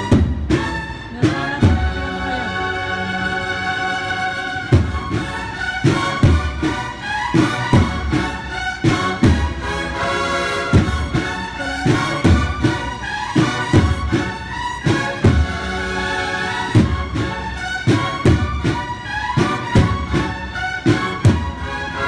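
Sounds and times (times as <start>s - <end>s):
drums playing: 0.0s - 2.4s, 4.6s - 22.0s
cornet melody: 0.0s - 22.0s.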